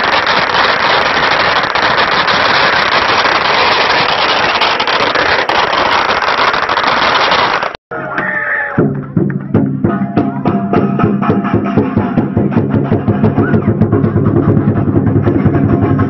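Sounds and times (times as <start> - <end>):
firecrackers popping: 0.0 - 7.8.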